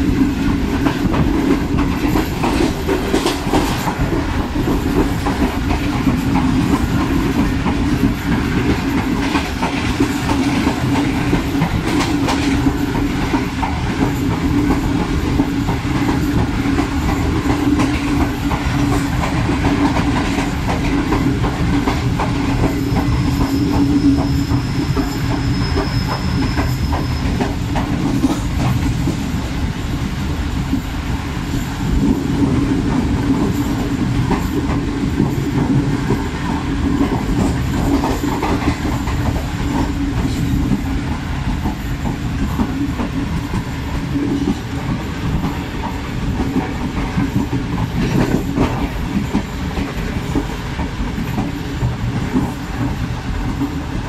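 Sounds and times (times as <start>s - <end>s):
train wheels rumbling on rail: 0.0s - 54.0s
faint high wheel squeal: 22.8s - 27.5s.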